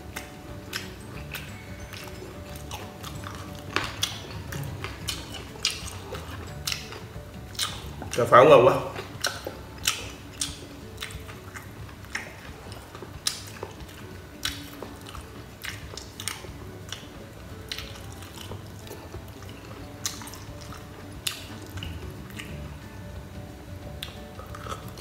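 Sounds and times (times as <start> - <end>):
wet mouth sounds: 0.0 - 22.9, 23.8 - 25.0.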